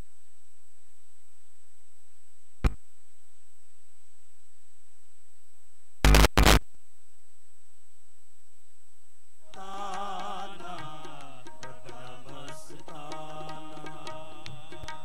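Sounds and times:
harmonium music: 0:09.5 - 0:15.0
person singing: 0:09.5 - 0:15.0
tabla drum strokes: 0:09.5 - 0:15.0.

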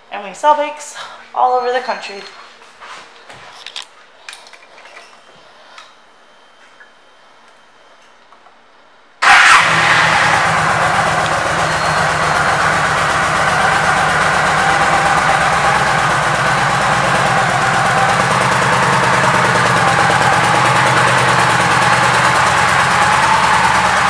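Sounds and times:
motorcycle engine starting and idling: 0:09.2 - 0:24.0.

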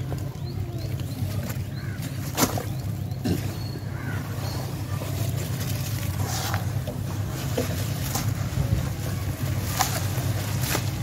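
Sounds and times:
wet splats: 0:02.2 - 0:02.8
hands squishing wet slurry: 0:03.8 - 0:11.0.

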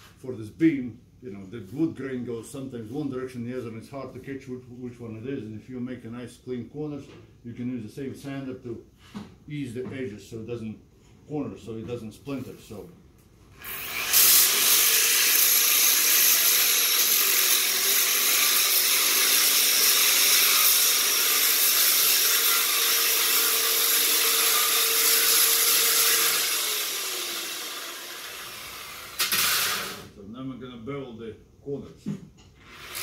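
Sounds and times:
electric sander on wood: 0:13.8 - 0:30.1.

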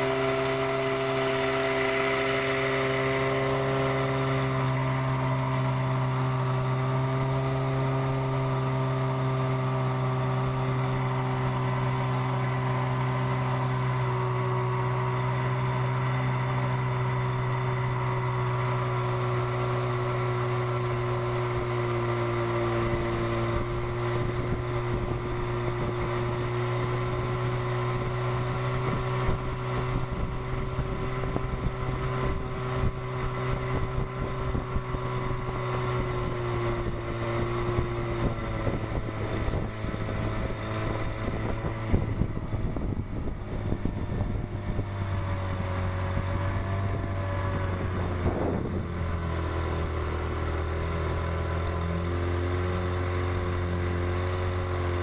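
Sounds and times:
outboard engine buzzing: 0:00.0 - 0:55.0
wind on microphone: 0:08.1 - 0:55.0.

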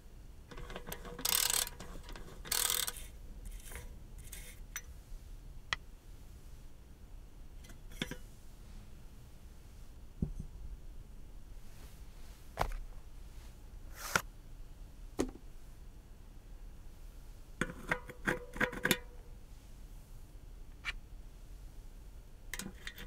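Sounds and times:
metal rotor ringing: 0:00.5 - 0:04.4
metal rotor tapping: 0:00.5 - 0:04.5.

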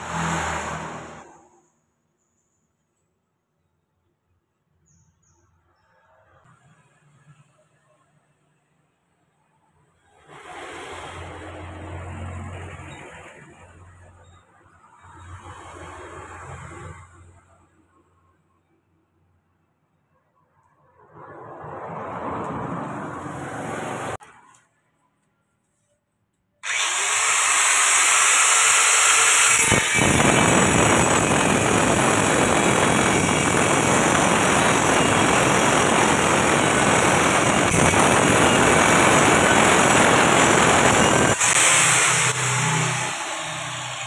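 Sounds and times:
angle grinder cutting tile: 0:00.0 - 0:01.5, 0:26.6 - 0:44.0.

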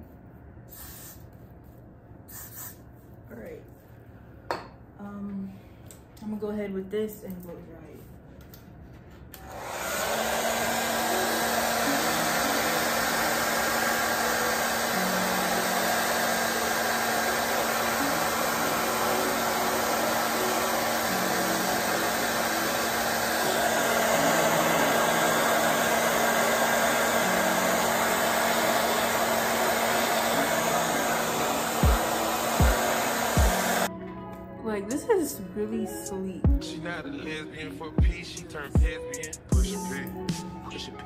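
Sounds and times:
hair dryer blowing: 0:09.4 - 0:33.9.

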